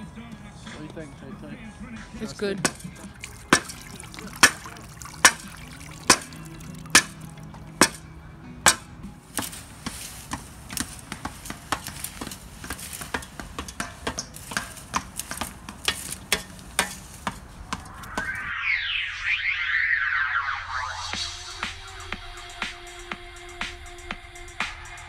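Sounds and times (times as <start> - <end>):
shovel slapping and scraping dirt: 2.6 - 8.1, 8.7 - 18.5.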